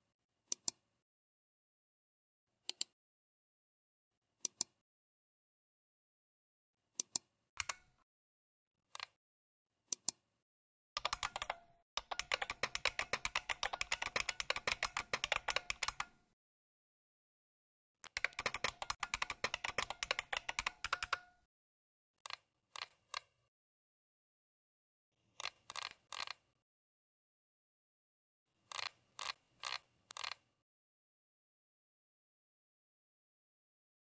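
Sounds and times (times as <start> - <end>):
keyboard key clicks: 11.0 - 16.2, 18.0 - 21.4.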